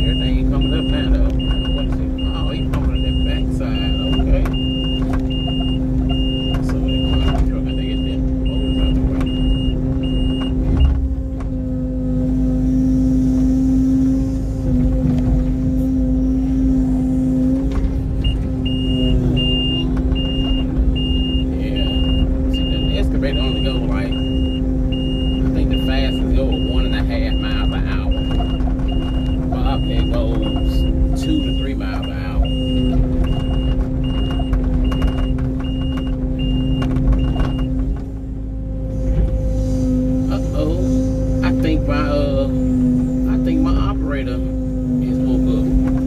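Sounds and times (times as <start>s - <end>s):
backup alarm beeping: 0.0s - 11.0s, 18.2s - 37.8s
diesel engine running: 0.0s - 46.0s.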